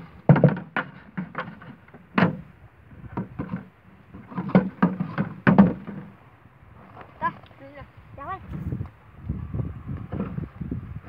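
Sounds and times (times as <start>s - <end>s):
hollow plastic knocks and rattles: 0.2s - 2.4s, 3.1s - 6.1s.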